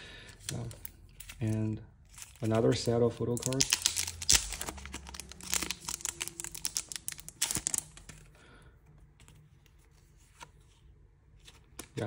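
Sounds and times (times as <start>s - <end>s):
crinkly plastic wrapping crackling: 0.5s - 8.2s.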